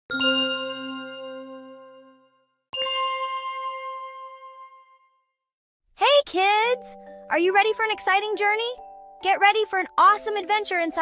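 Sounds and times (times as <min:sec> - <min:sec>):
bell-like chime strikes: 0:00.1 - 0:05.3.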